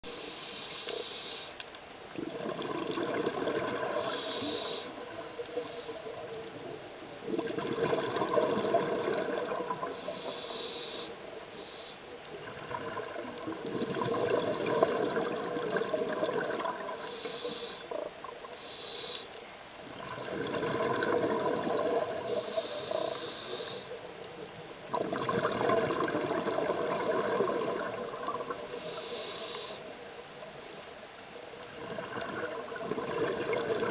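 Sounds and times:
regulator inhale hiss: 0:00.0 - 0:01.6, 0:03.8 - 0:06.2, 0:09.7 - 0:12.1, 0:13.6 - 0:15.3, 0:16.8 - 0:19.4, 0:21.3 - 0:24.1, 0:26.6 - 0:31.1, 0:33.4 - 0:33.9
bubbling exhaust underwater: 0:02.1 - 0:11.6, 0:12.2 - 0:18.7, 0:19.8 - 0:30.3, 0:31.6 - 0:33.9.

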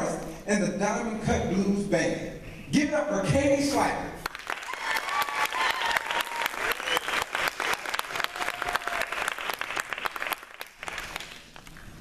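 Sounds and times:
audience applauding: 0:04.2 - 0:11.8.

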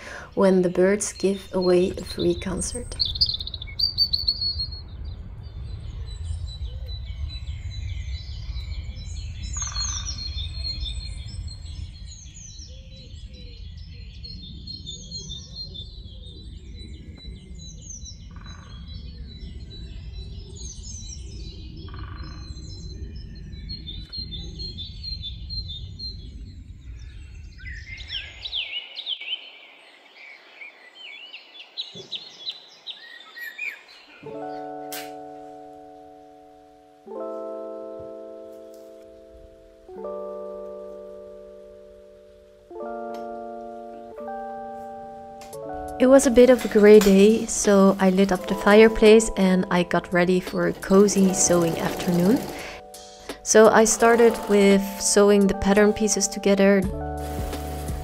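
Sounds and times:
birds chirping and warbling: 0:00.0 - 0:35.4, 0:41.8 - 0:58.0
low rumble: 0:01.5 - 0:27.9.

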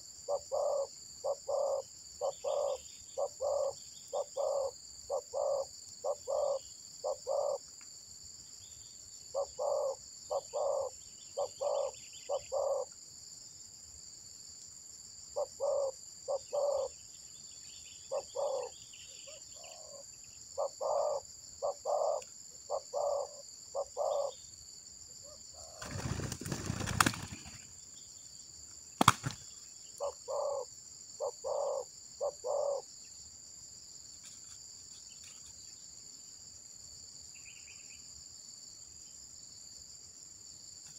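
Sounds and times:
high insect drone: 0:00.0 - 0:40.9
dove cooing: 0:00.3 - 0:07.6, 0:09.3 - 0:12.9, 0:15.4 - 0:16.9, 0:18.1 - 0:20.0, 0:20.6 - 0:24.3, 0:30.0 - 0:32.8.

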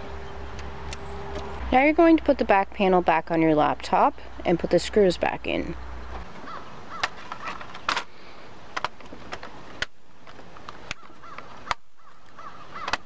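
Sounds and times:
plastic panel clicking into place: 0:12.8 - 0:13.0.

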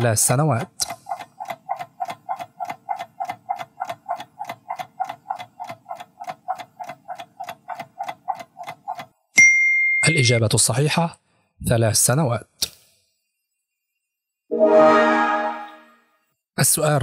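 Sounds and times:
fast clock-like ticking: 0:00.0 - 0:09.2.

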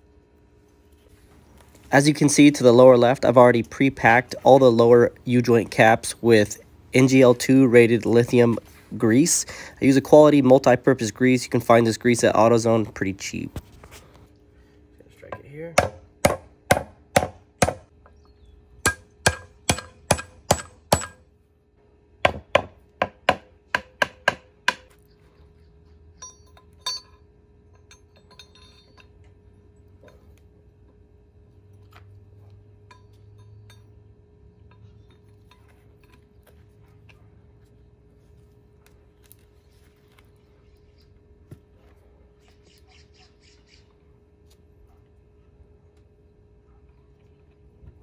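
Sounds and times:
hammer striking metal: 0:15.3 - 0:17.9, 0:18.8 - 0:21.2, 0:22.2 - 0:24.9, 0:26.2 - 0:29.2
metal parts clinking: 0:26.2 - 0:29.3
handling metal parts: 0:26.2 - 0:30.4, 0:31.7 - 0:37.2.

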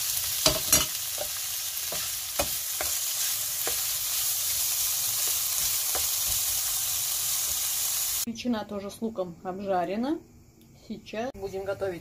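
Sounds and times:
food sizzling in frying pan: 0:00.0 - 0:08.3.

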